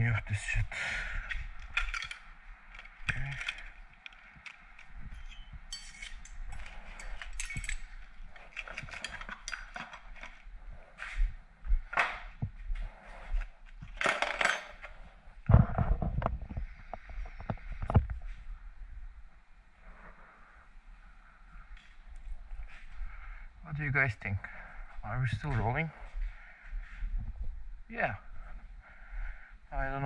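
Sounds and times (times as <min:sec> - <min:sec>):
small metal parts clinking: 0:01.6 - 0:10.4, 0:14.0 - 0:14.9.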